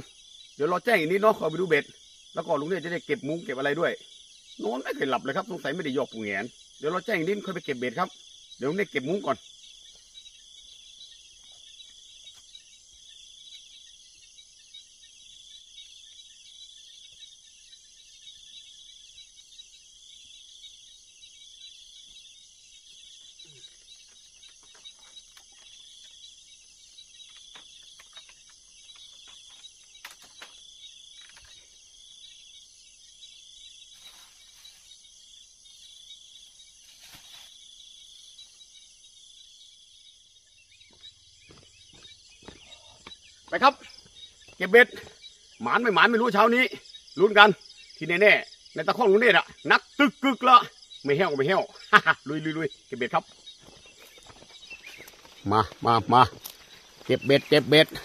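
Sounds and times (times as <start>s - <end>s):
high-pitched insect chorus: 0.0s - 58.0s
pulsing insect chirp: 0.0s - 58.0s
mosquito net rustling: 33.6s - 39.5s, 53.3s - 58.0s.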